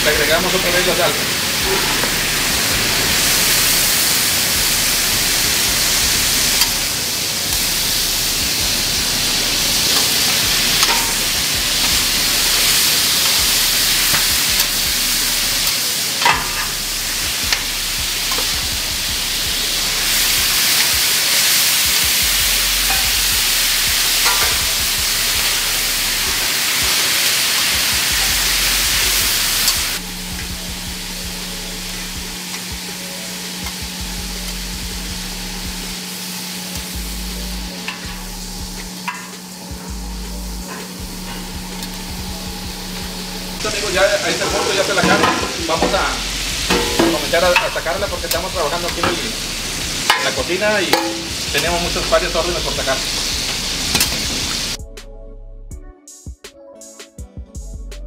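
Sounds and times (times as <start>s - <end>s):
meat and onions sizzling on griddle: 0.0s - 54.8s
steady low hum: 28.1s - 32.4s, 39.8s - 44.0s, 45.9s - 50.0s
spatula scraping and tapping steel: 46.7s - 47.2s.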